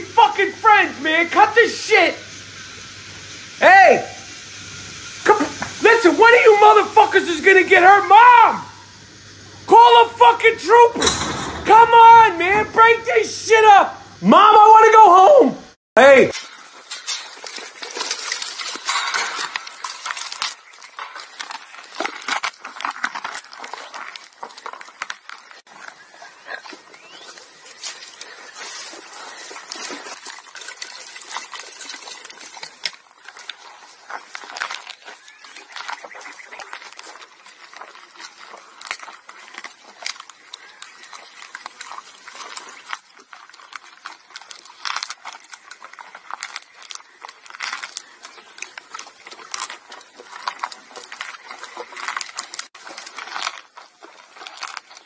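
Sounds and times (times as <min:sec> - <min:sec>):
camels chewing cactus: 0:16.3 - 0:55.0.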